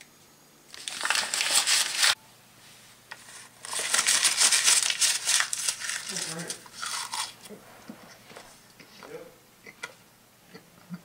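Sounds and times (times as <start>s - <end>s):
paper crumpling: 0.7s - 2.2s, 3.2s - 7.4s.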